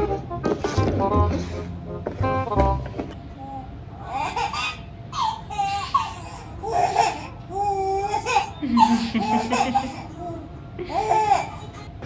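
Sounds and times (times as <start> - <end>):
baby laughing in squeals: 4.0 - 11.9
lower laughter: 8.3 - 11.8.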